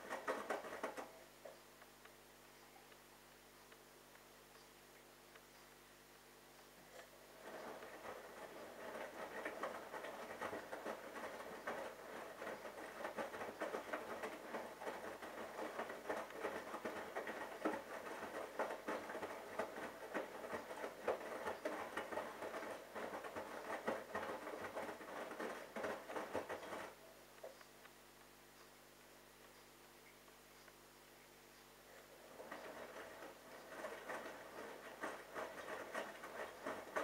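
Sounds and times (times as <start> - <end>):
laundry tumbling in washing machine: 0.0 - 1.3, 6.9 - 27.0, 32.0 - 37.0.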